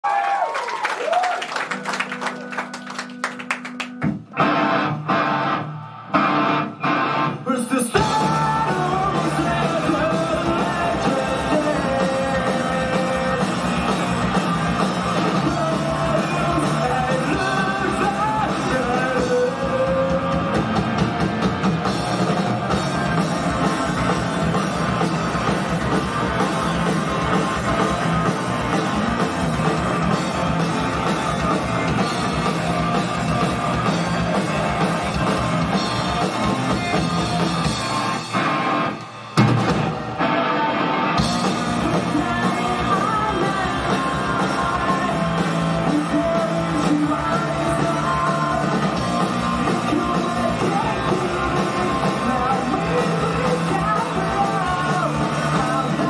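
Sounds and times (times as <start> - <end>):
drum kit: 1.0 - 56.0
electric guitars: 1.1 - 56.0
person singing: 7.4 - 14.4, 15.1 - 20.7, 41.4 - 56.0.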